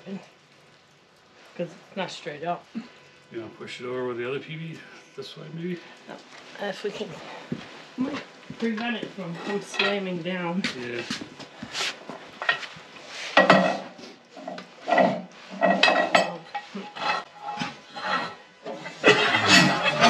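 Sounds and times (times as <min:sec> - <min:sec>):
scraping: 0:08.0 - 0:20.0.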